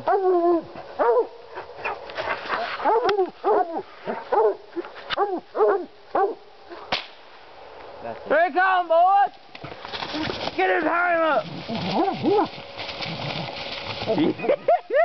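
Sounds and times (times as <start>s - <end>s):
hounds barking: 0.0s - 6.9s, 11.6s - 13.6s.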